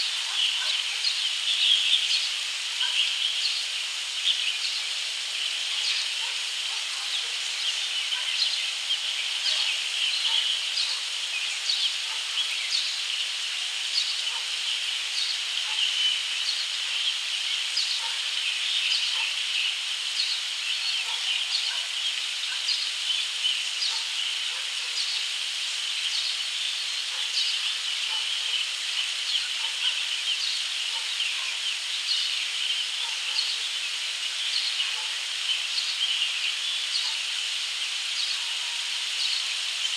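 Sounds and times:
high-pitched outdoor hiss: 0.0s - 39.9s.

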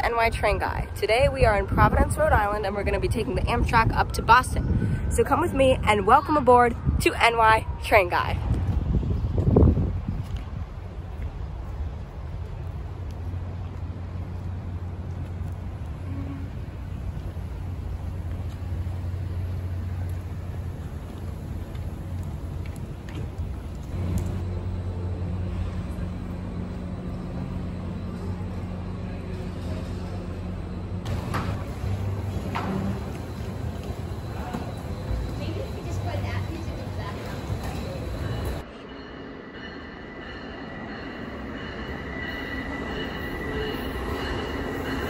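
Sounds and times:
street traffic: 0.0s - 45.0s
train rumble: 0.0s - 45.0s
wheel squeal on rails: 31.1s - 38.7s.

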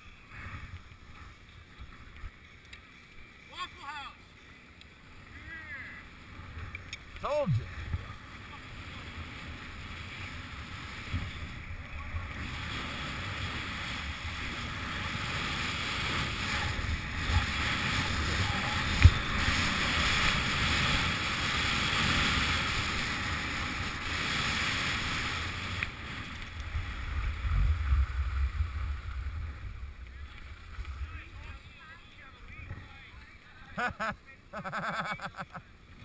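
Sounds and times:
skis sliding over snow: 0.0s - 7.2s, 8.0s - 36.0s
wind rumbling on microphone: 6.2s - 33.2s.

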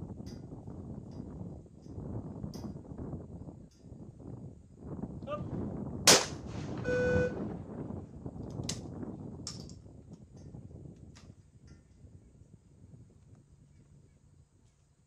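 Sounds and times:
shotgun shot: 6.1s - 6.8s
short electronic beep: 6.8s - 7.4s.

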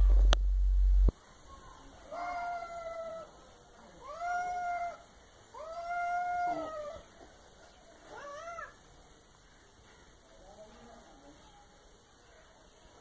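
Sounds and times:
cat crying out: 2.1s - 3.3s, 4.0s - 7.1s, 8.1s - 8.8s.

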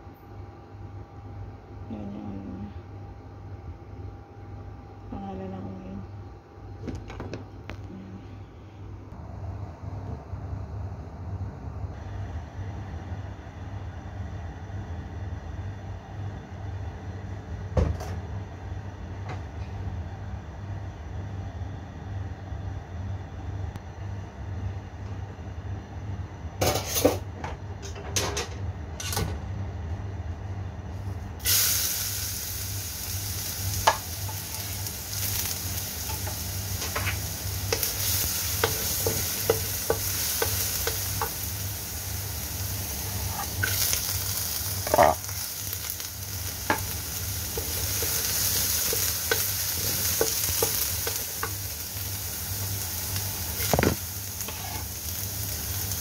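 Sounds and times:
garlic sizzling in oil: 31.4s - 56.0s.

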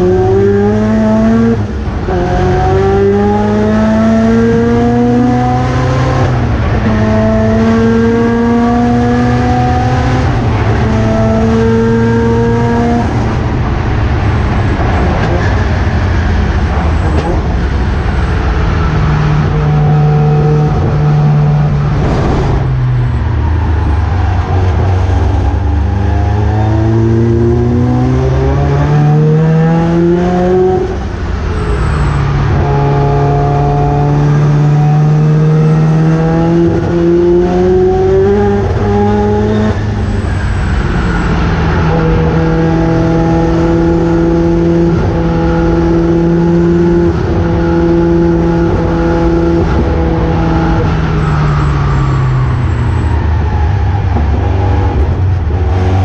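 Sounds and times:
race car engine accelerating: 0.0s - 56.0s.

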